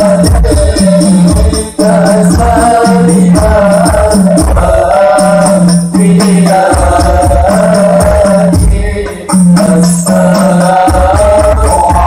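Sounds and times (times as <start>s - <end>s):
jingling percussion: 0.0s - 12.0s
men singing through pa system: 0.0s - 12.0s.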